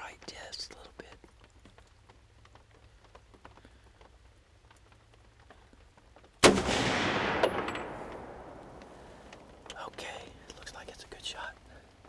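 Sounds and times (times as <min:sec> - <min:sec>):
light rain pattering: 0:00.0 - 0:12.0
rifle shot: 0:06.4 - 0:09.6.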